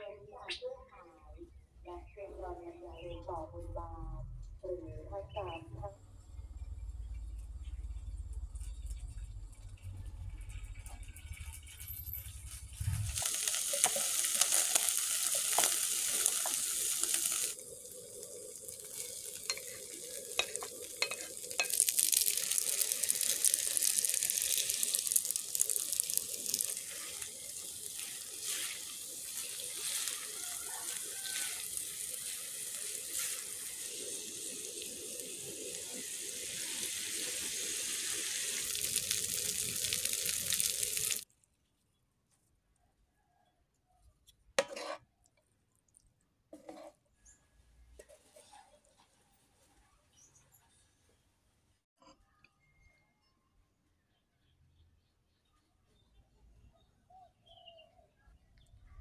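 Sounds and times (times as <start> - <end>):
food sizzling in hot oil: 12.0 - 41.3
utensils scraping a pan: 19.4 - 24.9, 26.4 - 32.4, 44.6 - 45.0.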